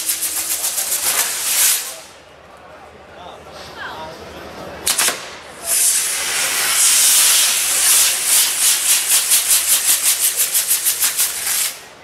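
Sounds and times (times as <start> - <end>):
firework hissing: 0.0 - 2.1, 5.0 - 11.9.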